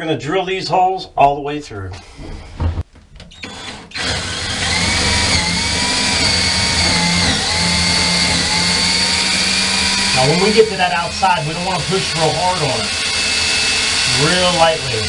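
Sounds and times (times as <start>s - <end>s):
cordless drill boring into wood: 3.3s - 15.0s.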